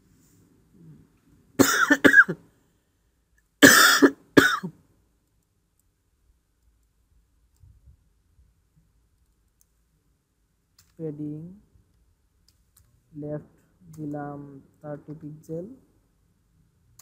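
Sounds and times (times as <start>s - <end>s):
person coughing: 1.6s - 2.4s, 3.6s - 4.7s.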